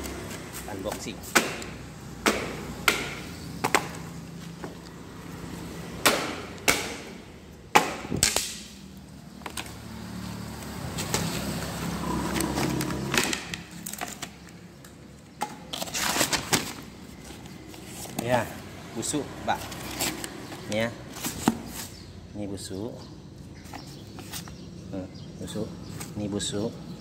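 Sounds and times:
wooden crate boards knocking: 1.3 - 4.0.

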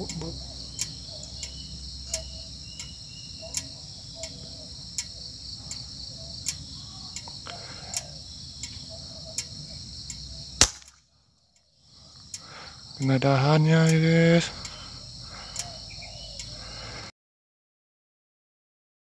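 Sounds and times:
insects buzzing: 0.0 - 17.1
faint repeating tick: 0.8 - 4.4, 6.4 - 6.6, 7.2 - 8.8, 14.6 - 15.7
air rifle shot: 10.6 - 11.0.

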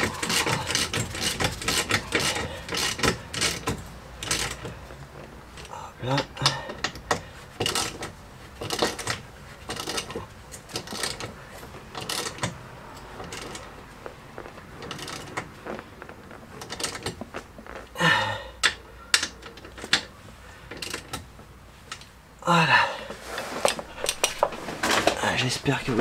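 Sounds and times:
ratchet wrench clicking: 0.0 - 4.7.

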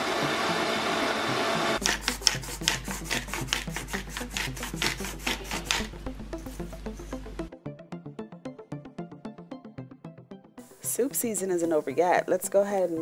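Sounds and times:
blender running: 0.0 - 2.4
background music: 0.0 - 13.0
pepper mill grinding: 1.8 - 7.2.

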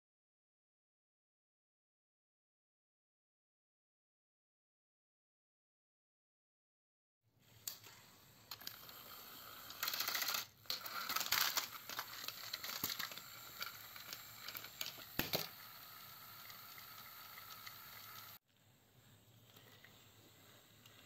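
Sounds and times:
toy train motor whirring: 7.4 - 18.4
plastic wheels clicking on track: 7.5 - 18.4.

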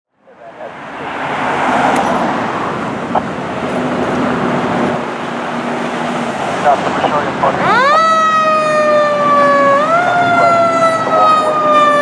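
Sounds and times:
cars passing: 0.1 - 12.0.

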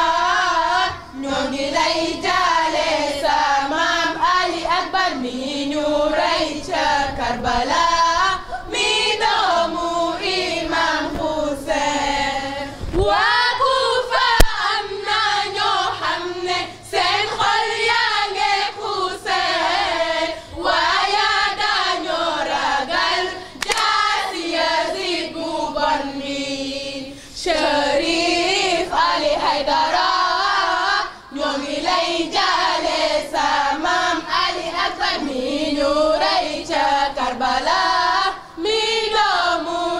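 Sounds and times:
group of high voices chanting: 0.0 - 39.9.

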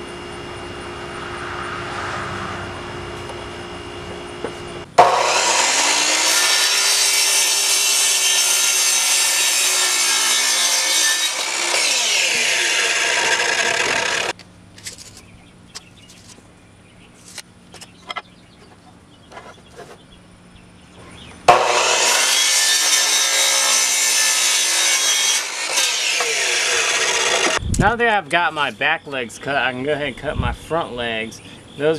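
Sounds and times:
saw motor winding down: 0.0 - 14.3, 21.5 - 27.6
miter saw cutting wood: 0.0 - 14.4, 21.5 - 27.6.

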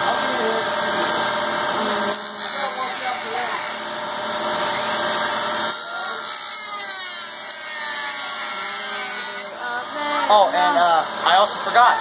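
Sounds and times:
rotary tool grinding plastic: 2.1 - 4.1, 4.9 - 9.6.

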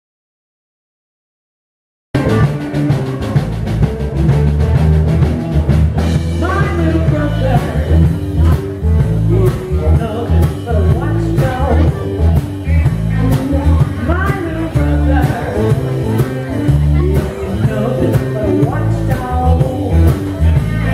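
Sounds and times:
blues band playing: 2.2 - 20.9
woman singing: 6.4 - 8.1, 9.3 - 12.3, 13.1 - 20.9.

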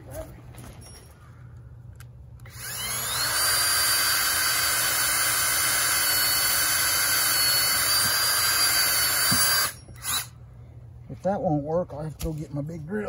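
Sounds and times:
electric drill boring into wood: 2.4 - 10.3.

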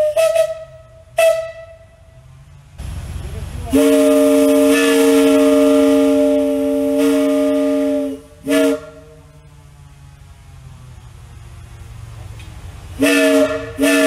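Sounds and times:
locomotive whistle chord: 0.0 - 2.1, 3.6 - 9.3, 13.0 - 14.0.

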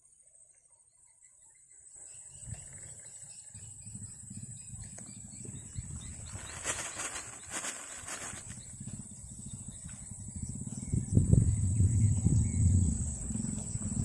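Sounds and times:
rustling: 6.2 - 8.6
low rumble: 8.5 - 14.0.

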